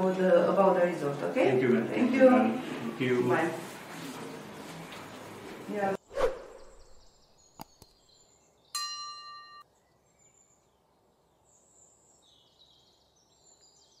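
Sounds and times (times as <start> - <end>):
bell-like ding: 8.8 - 9.6.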